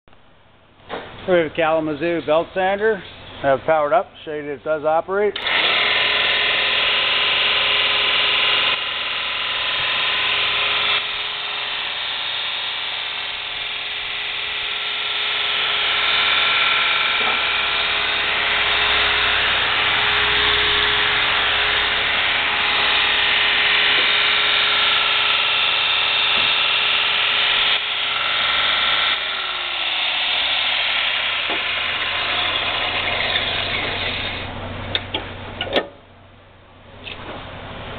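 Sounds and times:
belt sander motor humming: 5.4 - 35.1
abrasive belt whirring: 5.4 - 35.2.

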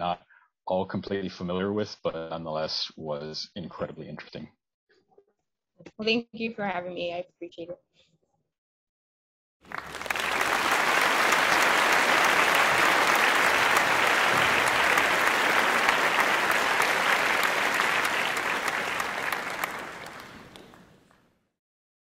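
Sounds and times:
crowd applauding: 9.6 - 21.2.

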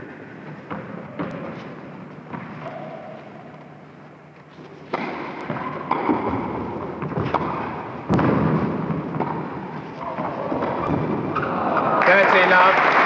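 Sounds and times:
racquets hitting tennis ball: 4.5 - 11.9.

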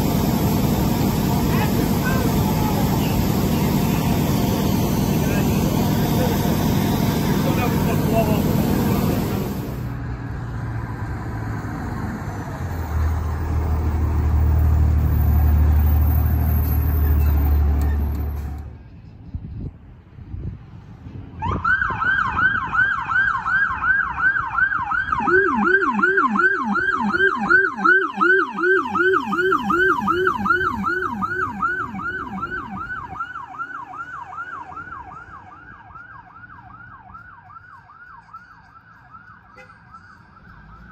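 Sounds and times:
fire engine engine running: 0.0 - 40.9
lower yelping siren tone: 1.1 - 9.7, 21.4 - 40.9
siren yelping: 1.3 - 9.7, 21.4 - 40.9.

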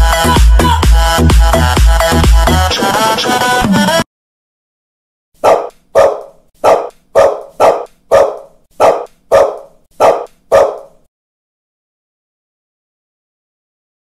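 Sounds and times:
dog barking: 5.4 - 11.1.

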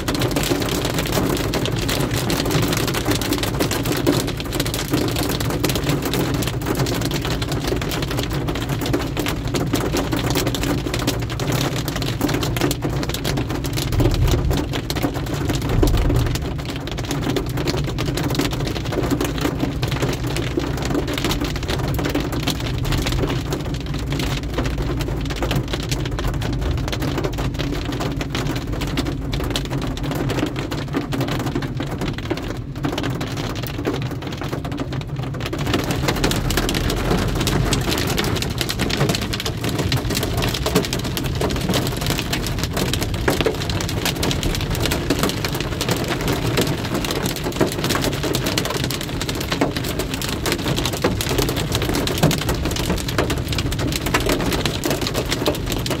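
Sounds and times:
car hum on wet road: 0.0 - 56.0
heavy rain on car roof: 0.0 - 56.0
deep low rumble: 12.0 - 19.3.

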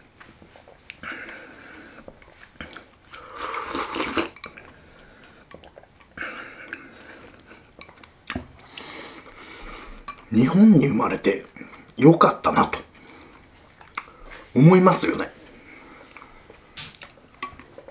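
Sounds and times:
person slurping: 1.0 - 7.8.

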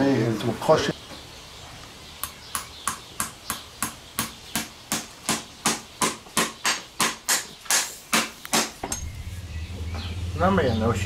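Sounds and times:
hammer tapping horseshoe nails: 2.2 - 9.0.

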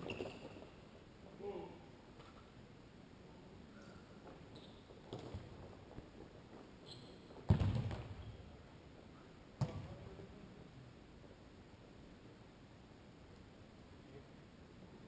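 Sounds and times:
ball kicks echoing in hall: 3.8 - 6.3, 6.9 - 8.7, 9.5 - 10.2.

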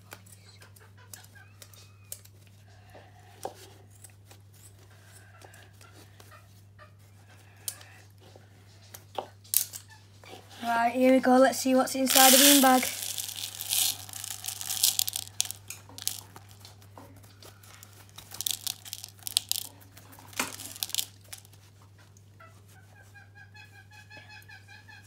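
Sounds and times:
plastic pellets pouring into bowl: 12.0 - 16.6, 17.8 - 21.5
fabric bag rustling: 12.1 - 16.5.

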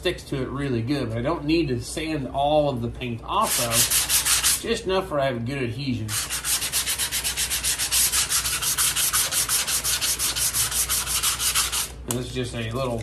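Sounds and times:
hand sanding metal: 3.4 - 4.7, 6.1 - 12.0.

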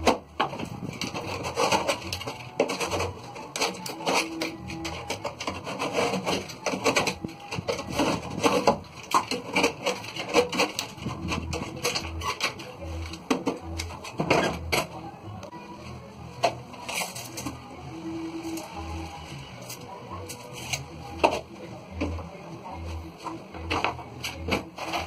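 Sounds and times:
hand tool scraping drywall: 1.0 - 12.6.

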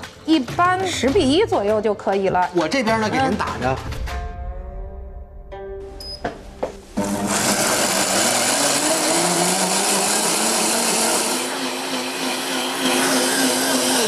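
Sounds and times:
blender grinding: 7.0 - 14.0
blender motor hum: 7.0 - 14.0.

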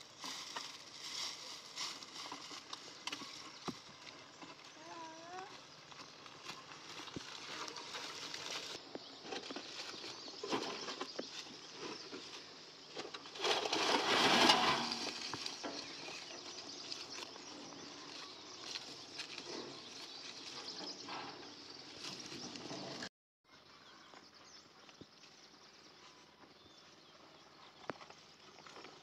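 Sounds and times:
footsteps on stony ground: 0.0 - 12.8
scraping and crunching: 0.0 - 23.1
wheelbarrow over brush and stones: 0.0 - 23.1, 25.2 - 29.0.

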